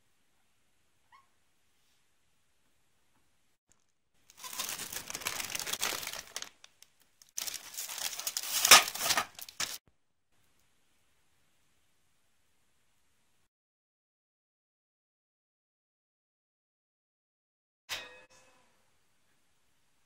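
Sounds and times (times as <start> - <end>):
plastic wrap crinkling: 3.7 - 9.8.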